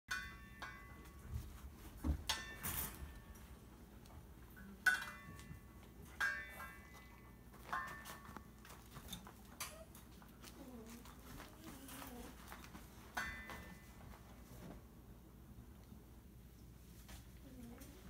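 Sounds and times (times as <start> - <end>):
metal wire clinking: 2.2 - 3.5.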